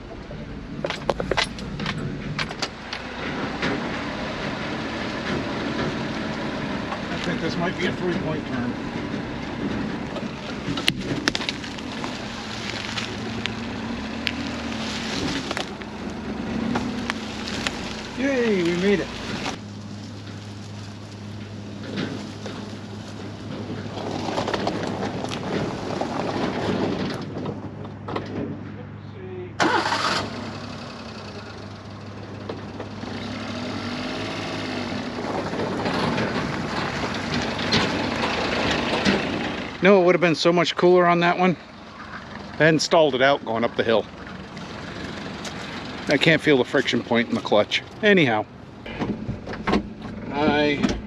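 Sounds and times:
small truck engine revving: 1.5 - 28.5, 29.6 - 51.0
tyres crunching over dry leaves: 3.8 - 27.8, 32.9 - 39.9, 43.1 - 48.9
twigs snapping: 10.0 - 26.2, 44.6 - 46.2.

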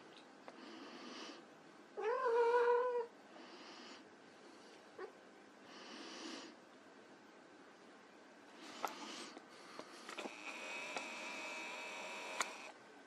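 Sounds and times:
soft breathy noises: 0.3 - 1.8, 3.1 - 6.8, 8.4 - 10.8.

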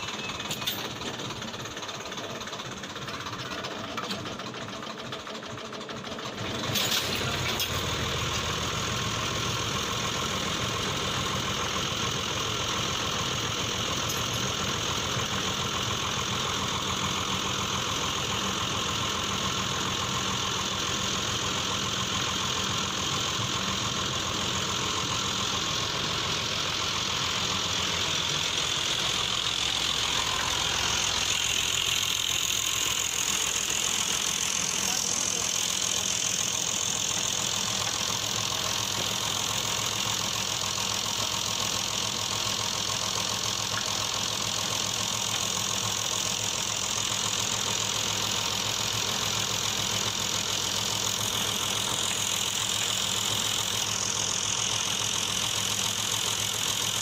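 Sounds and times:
tractor diesel engine idling: 0.0 - 57.0.

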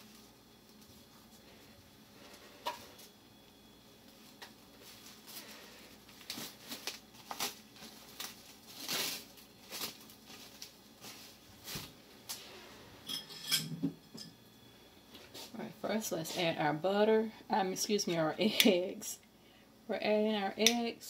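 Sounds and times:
rustling and crinkling: 4.0 - 12.5.

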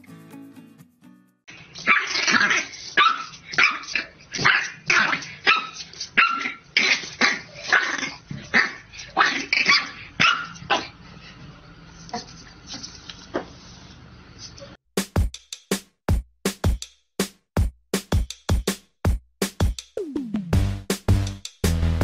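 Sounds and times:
puppy yapping: 1.8 - 11.0.

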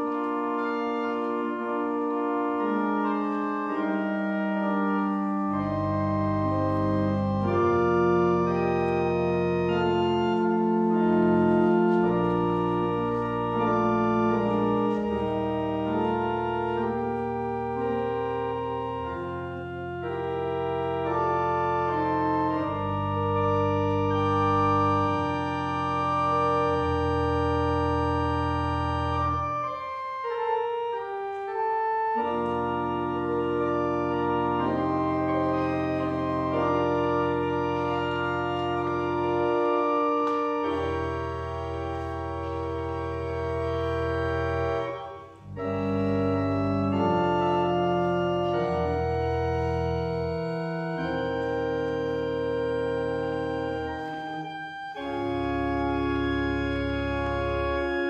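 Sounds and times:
church organ chords: 0.0 - 58.0.

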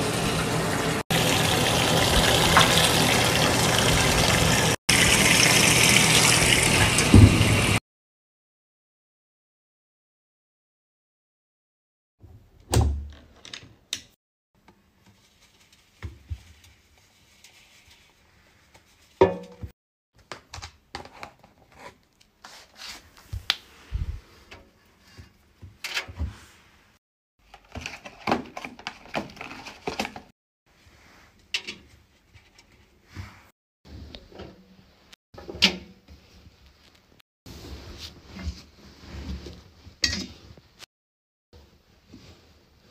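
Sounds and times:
washing machine door and drum knocks: 7.0 - 7.8.

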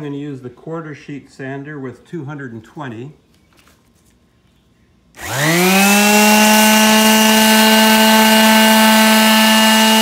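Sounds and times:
orbital sander whining: 5.2 - 10.0.

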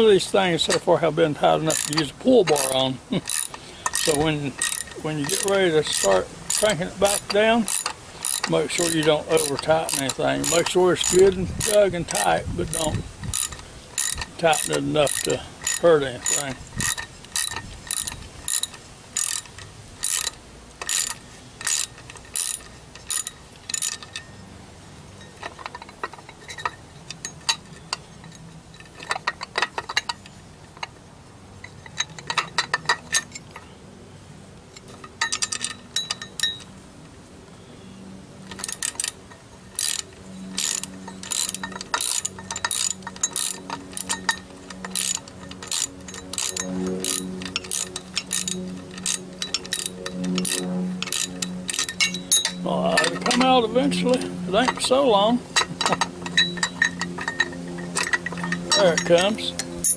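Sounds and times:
low steady hum: 0.0 - 59.9
socket ratchet clicking: 1.7 - 24.3, 38.4 - 59.9.

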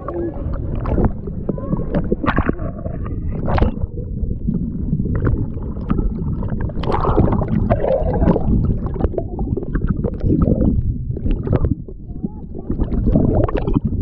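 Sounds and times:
water sloshing muffled gurgle: 0.0 - 14.0
water splashing: 0.0 - 14.0.

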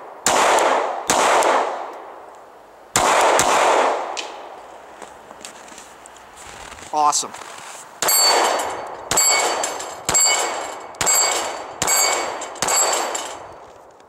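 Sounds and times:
pistol shots: 0.0 - 2.0, 3.0 - 4.4, 8.0 - 13.6
steel target clanging: 8.0 - 13.7.

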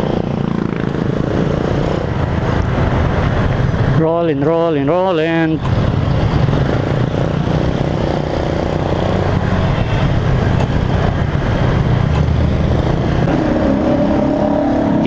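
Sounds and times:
motorcycle engine running: 0.0 - 4.0
wind and road noise: 0.0 - 15.0.

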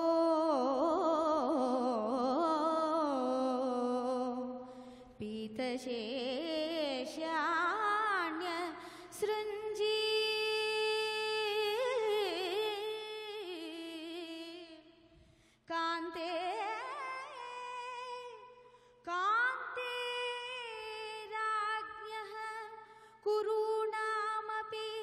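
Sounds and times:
woman singing ornamented melody: 15.7 - 25.0.

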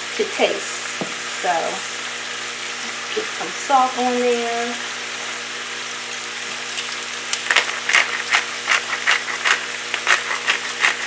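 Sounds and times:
vegetables sizzling in a pan: 0.0 - 11.0
salt grinder clicking: 7.4 - 11.0.

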